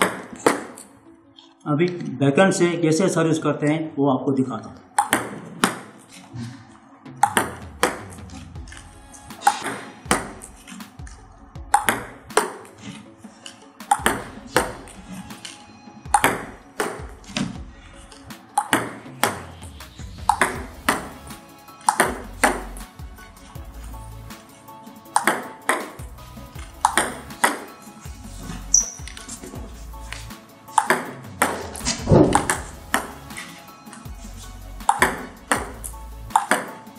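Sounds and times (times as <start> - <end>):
ping pong ball bouncing on table: 5.0 - 5.9, 7.2 - 8.0, 9.4 - 10.4, 11.7 - 12.7, 13.9 - 14.8, 16.1 - 17.1, 18.6 - 19.4, 20.3 - 21.1, 21.9 - 22.6, 25.2 - 26.0, 26.8 - 27.7, 30.7 - 33.1, 34.8 - 36.8
ping pong ball clicking off paddle: 5.0 - 5.9, 7.2 - 8.0, 9.4 - 10.3, 11.7 - 12.7, 13.9 - 14.7, 16.2 - 17.0, 18.6 - 19.4, 20.3 - 21.1, 21.8 - 22.6, 25.2 - 26.0, 26.8 - 27.7, 30.7 - 33.1, 34.8 - 36.8.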